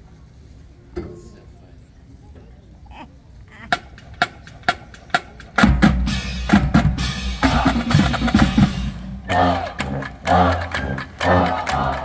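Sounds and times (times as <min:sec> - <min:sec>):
marching band brass chords: 0:05.1 - 0:12.0.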